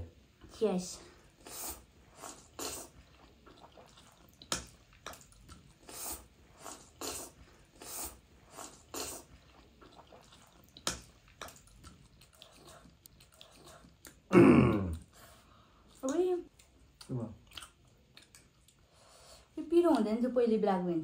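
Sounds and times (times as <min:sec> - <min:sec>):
noodles being slurped: 0:01.4 - 0:14.3.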